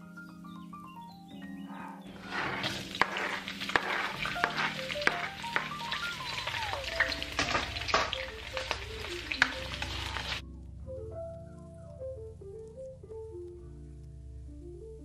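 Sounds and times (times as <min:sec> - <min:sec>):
light background music: 0:00.0 - 0:15.0
onions sizzling in oil: 0:02.2 - 0:10.4.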